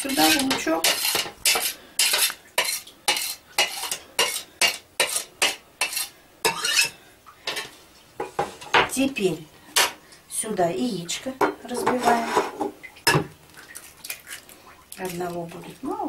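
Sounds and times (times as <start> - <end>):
metal utensil scraping and knocking: 0.0 - 9.0, 11.7 - 13.3.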